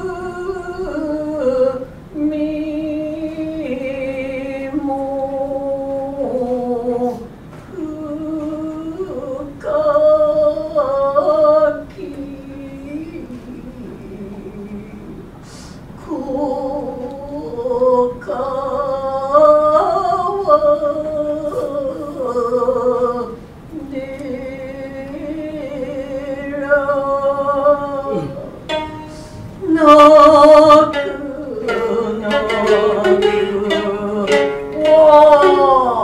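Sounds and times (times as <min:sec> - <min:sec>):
person chanting long notes: 0:16.0 - 0:36.0
plucked shamisen: 0:28.6 - 0:36.0.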